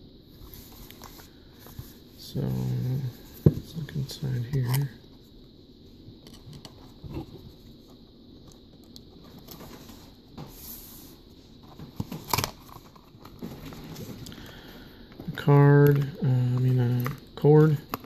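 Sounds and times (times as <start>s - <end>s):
cardboard rustling: 11.6s - 14.2s.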